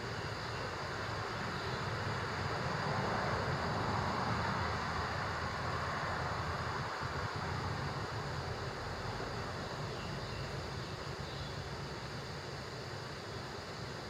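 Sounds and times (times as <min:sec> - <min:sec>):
highway traffic passing: 0:00.8 - 0:09.9.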